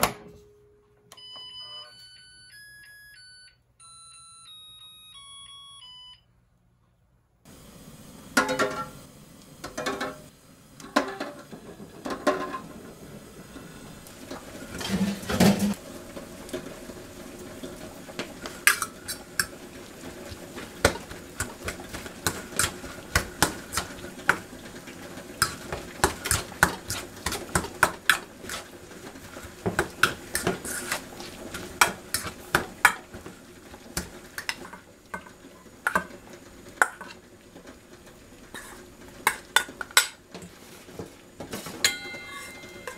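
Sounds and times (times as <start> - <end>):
fork scraping metal bowl: 30.3 - 31.0.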